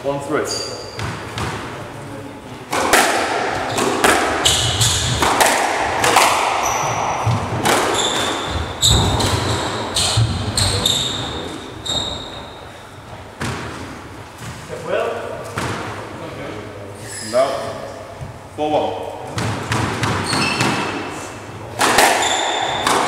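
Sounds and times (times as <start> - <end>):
squash ball cracking off rackets: 2.7 - 10.5, 21.7 - 23.0
shoes squeaking on wooden floor: 6.6 - 12.8, 20.2 - 21.0.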